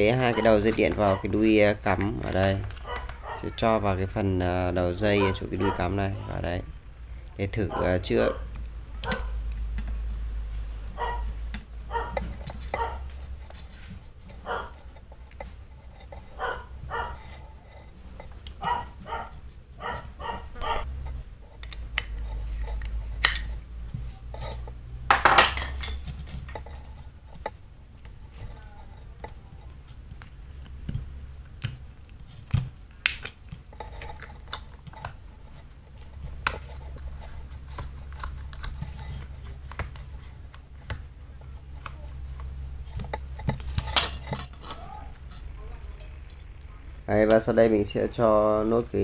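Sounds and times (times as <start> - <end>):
plastic parts clattering: 21.1 - 30.3, 32.4 - 45.4.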